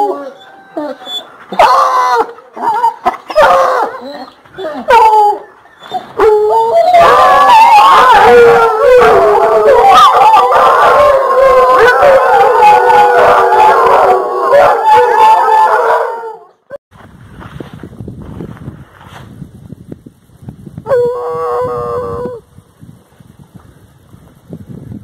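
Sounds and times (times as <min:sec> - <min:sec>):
hounds baying and howling: 0:00.0 - 0:16.7.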